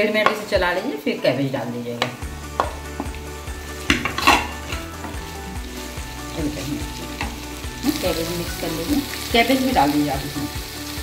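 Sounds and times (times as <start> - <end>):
food sizzling in a frying pan: 0.0 - 11.0
spatula scraping a pan: 3.8 - 5.2.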